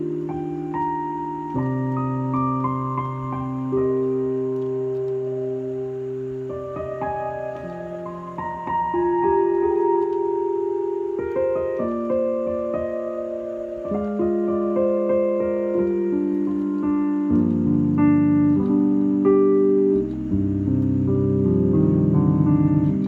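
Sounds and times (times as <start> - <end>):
electric piano chords: 0.0 - 23.0
deep bass notes: 14.3 - 23.0.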